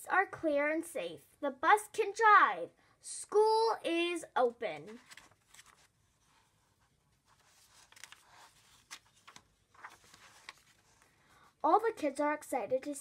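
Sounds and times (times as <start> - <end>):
book pages turning: 4.8 - 11.1.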